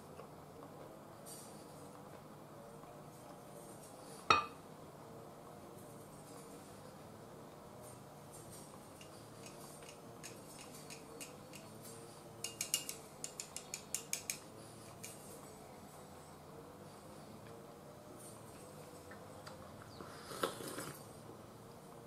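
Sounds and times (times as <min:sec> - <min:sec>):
chopsticks clicking on bowls: 0:09.0 - 0:15.2.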